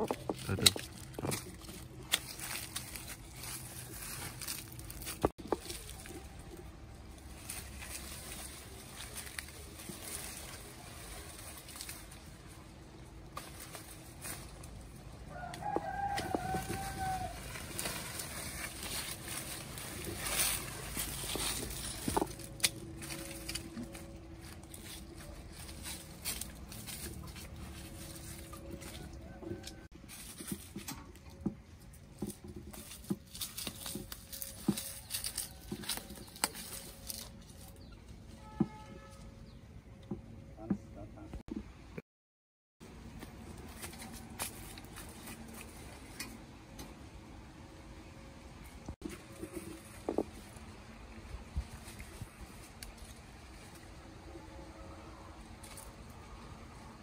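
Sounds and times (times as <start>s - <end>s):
leaves crunching: 0.1s - 30.9s, 32.2s - 38.0s, 43.0s - 46.2s
wheelbarrow pushed over leaves: 0.2s - 30.9s, 32.3s - 38.0s
rooster crowing: 15.2s - 17.8s, 28.6s - 30.0s
footsteps: 15.6s - 37.8s.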